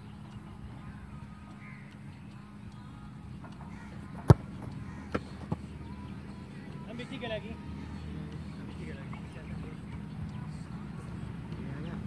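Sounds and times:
ball thudding: 3.5 - 5.7
football kicked hard: 4.2 - 5.7.

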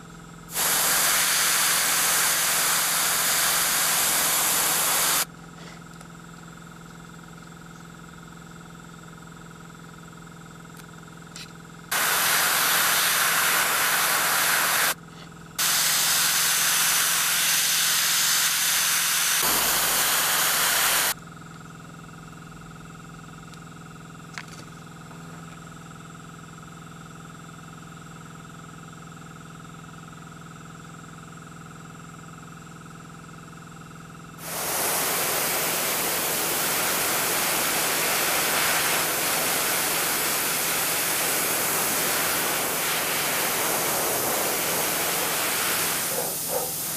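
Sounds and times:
steady low hum: 0.0 - 8.6, 11.4 - 21.2, 34.4 - 46.9
airbrush hissing: 0.5 - 5.3, 11.9 - 15.0, 15.6 - 21.2, 34.4 - 46.9.

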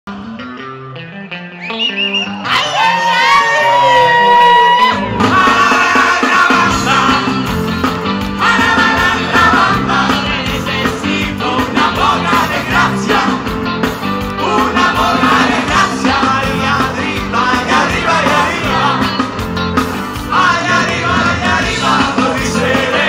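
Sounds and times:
live rock band playing: 0.1 - 23.0
several voices singing: 5.1 - 23.0.

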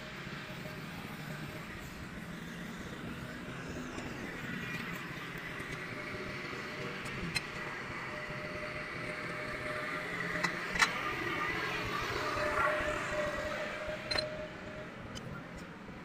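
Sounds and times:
distant road traffic hum: 0.0 - 16.0
faint steady whine: 0.0 - 16.0.

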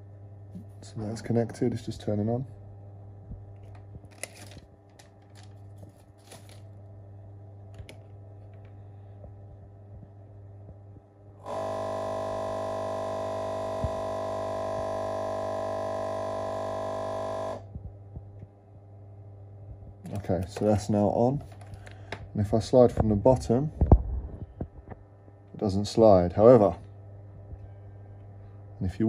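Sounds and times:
low electrical hum: 0.0 - 29.0
loud electrical buzz: 11.4 - 17.7.

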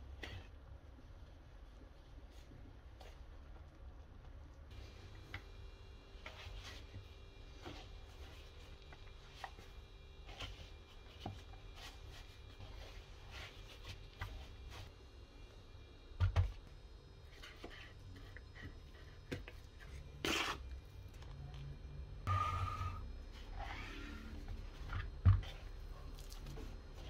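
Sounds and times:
hands kneading sticky dough: 0.0 - 15.5, 23.3 - 27.0
bowl scrape: 20.2 - 20.7.

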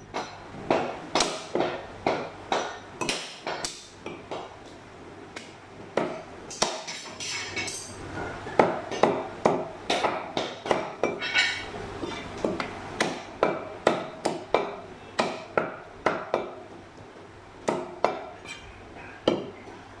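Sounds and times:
cleaver chopping on wooden block: 0.7 - 4.5, 12.4 - 16.5.

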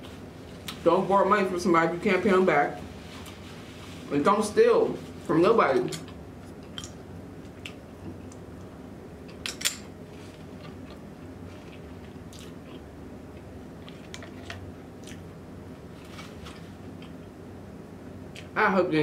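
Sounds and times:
steady low hum: 0.0 - 19.0
person chewing: 10.2 - 15.4, 16.1 - 17.3.

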